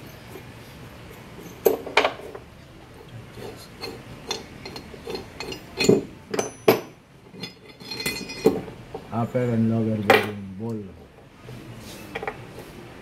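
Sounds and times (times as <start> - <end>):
metal clicks and clinks: 3.8 - 8.6.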